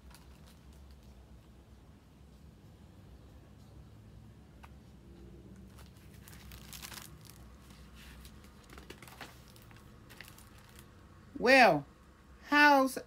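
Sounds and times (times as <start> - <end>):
book pages rustling: 5.6 - 11.0.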